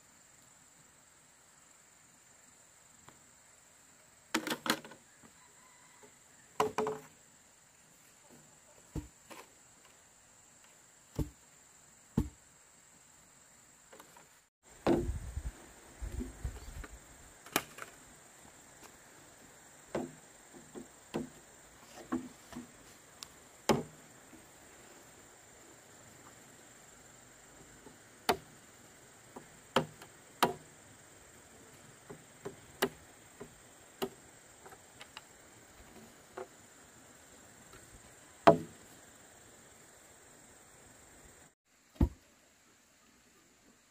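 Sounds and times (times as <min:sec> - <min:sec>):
sharp chopping knocks: 0:11.2 - 0:11.4, 0:12.2 - 0:12.4, 0:23.7 - 0:24.0, 0:38.5 - 0:38.7
dull low thumps: 0:14.9 - 0:16.8.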